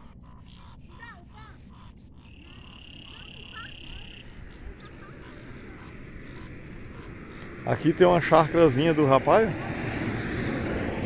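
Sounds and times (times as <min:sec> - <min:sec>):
short frog chirps: 0:00.0 - 0:07.7
frog clicking call: 0:00.0 - 0:11.0
frog trill: 0:00.0 - 0:11.0.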